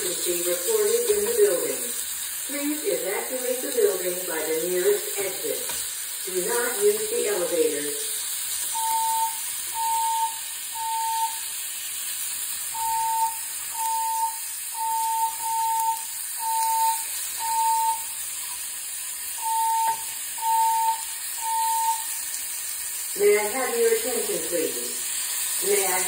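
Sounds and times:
sausage sizzling in a frying pan: 0:00.0 - 0:26.0
fire alarm beeping: 0:06.3 - 0:11.6, 0:12.7 - 0:18.6, 0:19.3 - 0:22.3.

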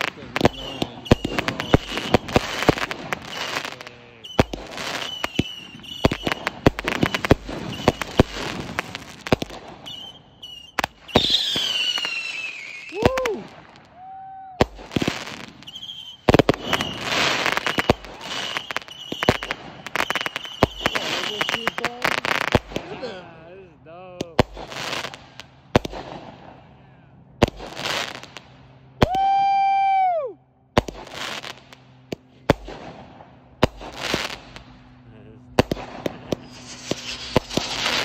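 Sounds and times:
falling firework whistle: 0:00.0 - 0:22.6, 0:29.0 - 0:31.6, 0:36.0 - 0:38.0
fireworks bangs and crackles: 0:00.0 - 0:29.6, 0:30.7 - 0:38.0.

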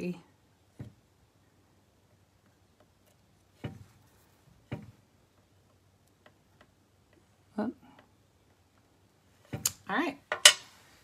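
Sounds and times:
items tapping on tabletop: 0:04.6 - 0:05.0.

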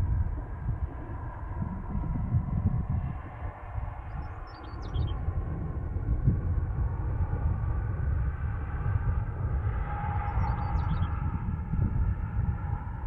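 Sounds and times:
wind buffeting microphone: 0:00.0 - 0:13.0
bird chirping: 0:04.4 - 0:05.2, 0:10.3 - 0:11.1.

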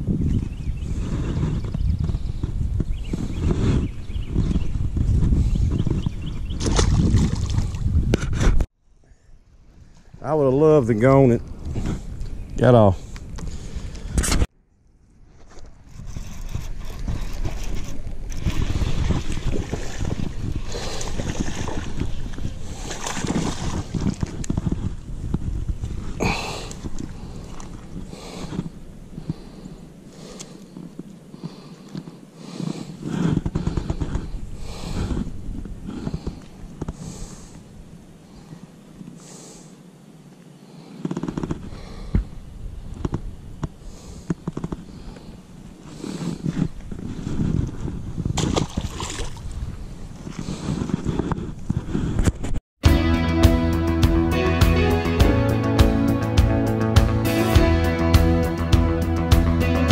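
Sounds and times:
wind buffeting microphone: 0:00.0 - 0:08.7, 0:15.7 - 0:31.6, 0:32.5 - 0:38.1, 0:41.4 - 0:52.6.

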